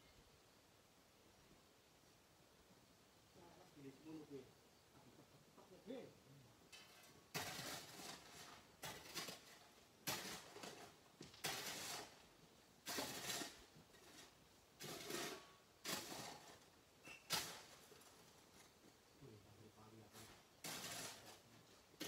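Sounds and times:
hand tools scraping sandy rock: 0:06.7 - 0:18.8, 0:20.0 - 0:22.0.

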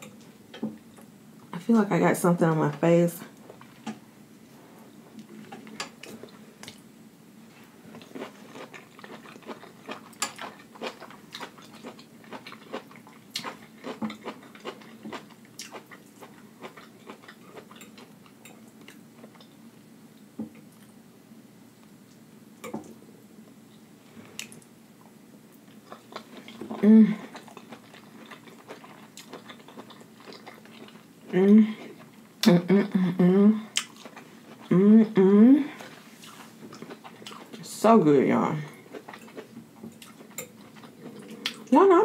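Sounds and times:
chewing and lip smacking: 0:08.0 - 0:19.5, 0:25.7 - 0:31.0, 0:33.7 - 0:34.7, 0:36.3 - 0:37.6, 0:38.9 - 0:41.7.

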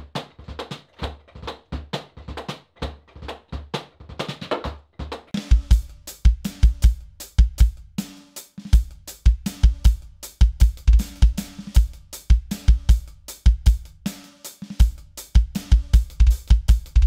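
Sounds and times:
heavy bass drum strokes: 0:05.4 - 0:14.0.

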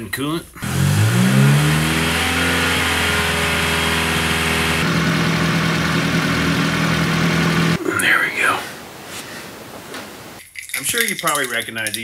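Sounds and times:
car engine running: 0:00.6 - 0:07.8.

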